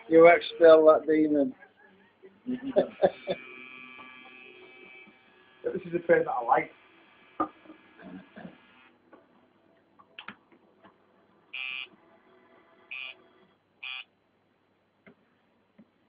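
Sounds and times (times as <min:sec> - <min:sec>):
tattoo machine buzzing: 0:02.8 - 0:08.9, 0:11.5 - 0:11.9, 0:12.9 - 0:14.1.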